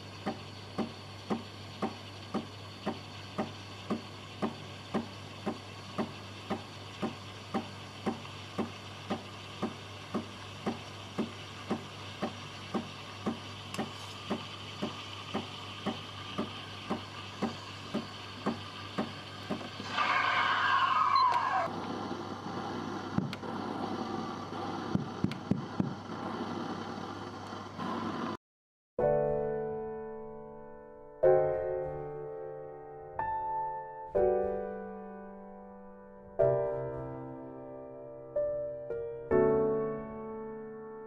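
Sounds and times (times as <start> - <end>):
steam wand hissing: 0.0 - 27.0
pump pulsing: 0.0 - 28.1
steam rush with falling squeal: 19.7 - 21.7.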